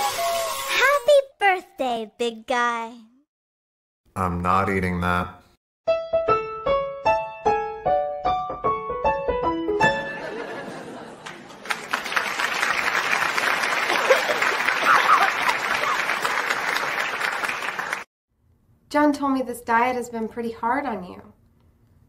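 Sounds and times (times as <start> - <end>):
audience cheering and laughter: 10.0 - 18.0
studio audience applause: 10.9 - 18.1.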